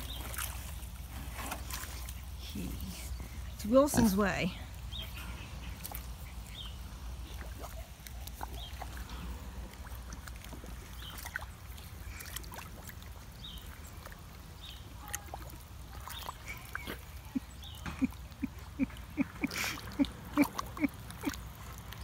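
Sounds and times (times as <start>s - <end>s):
pig snuffling and slurping: 0.0s - 22.0s
wet clicks and splashes: 5.6s - 22.0s.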